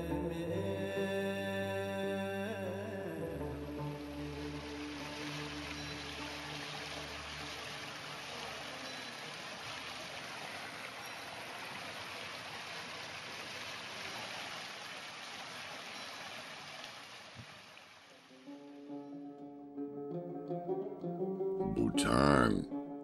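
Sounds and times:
stream water rushing: 2.5s - 18.4s.

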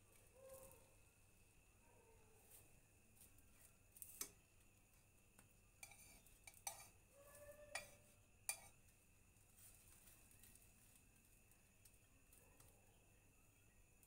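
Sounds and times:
spatula scraping frying pan: 5.8s - 7.0s.

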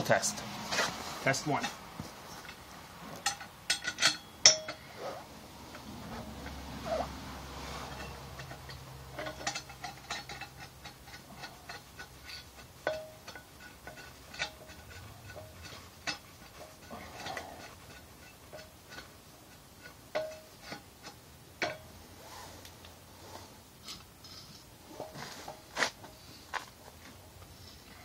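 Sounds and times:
hand pump metallic clicks: 3.2s - 4.8s, 7.9s - 21.8s.

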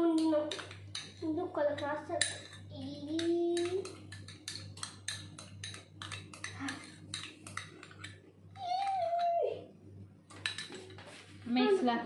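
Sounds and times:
steady low hum: 0.0s - 12.0s
kitchen clicks and clinks: 1.8s - 9.4s, 10.3s - 11.0s.

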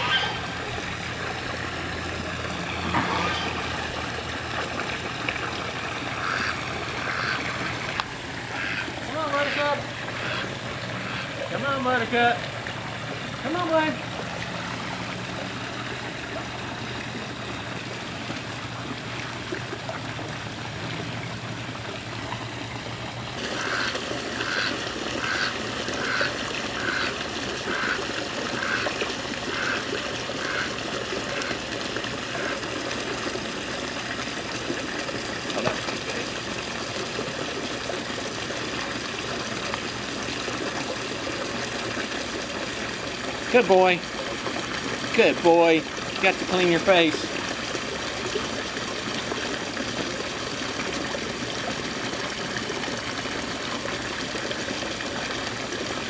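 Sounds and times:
duck splashing: 0.0s - 15.9s, 22.5s - 30.8s
water trickling in pool: 0.0s - 56.0s.

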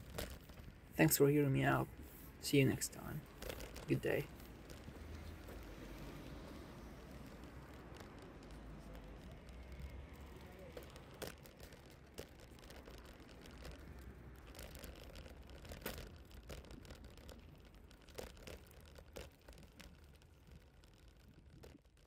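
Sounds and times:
sharp clicks and rattles: 0.0s - 22.0s
wheels rolling over pavement: 0.0s - 22.0s.

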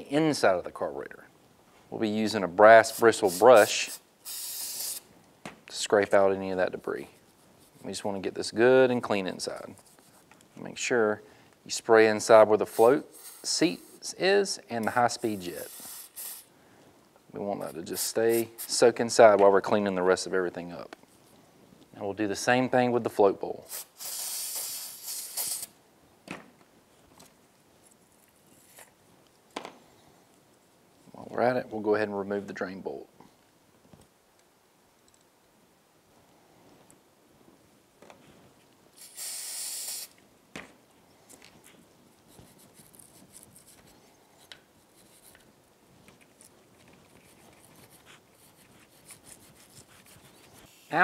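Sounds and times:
wire brush scratching metal: 2.8s - 5.0s
aerosol spray hissing: 2.9s - 5.1s, 12.6s - 14.0s, 15.1s - 16.5s, 17.7s - 18.8s, 23.6s - 25.8s, 39.0s - 40.2s.

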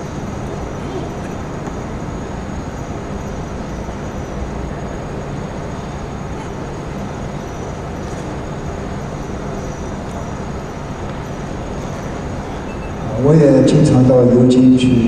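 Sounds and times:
low constant hum: 0.0s - 15.0s.

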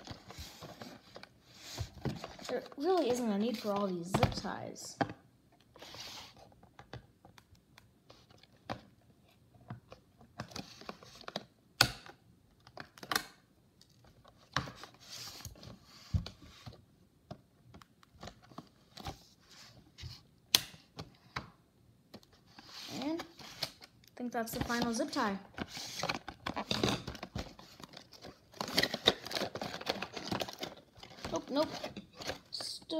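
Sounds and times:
packaging rustling and scraping: 0.0s - 4.6s, 5.7s - 6.7s, 10.4s - 11.5s, 13.9s - 16.8s, 22.3s - 32.9s.

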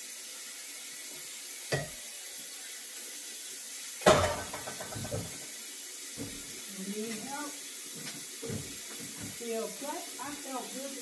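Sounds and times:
dishes clattering: 1.7s - 2.0s, 4.0s - 5.4s
dishes knocking in a sink: 1.7s - 2.0s, 4.0s - 5.4s, 8.4s - 9.4s.

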